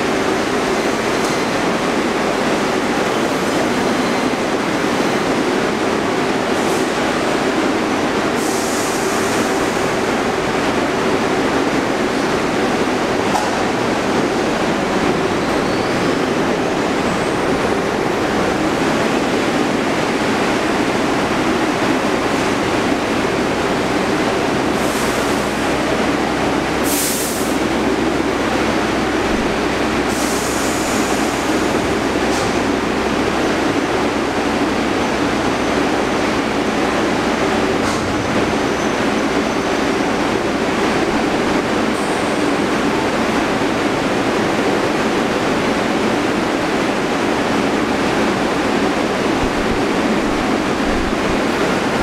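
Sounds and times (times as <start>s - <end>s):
subway train idling hum: 0.0s - 52.0s
short air hisses: 8.4s - 9.8s, 26.8s - 27.7s, 30.1s - 31.3s.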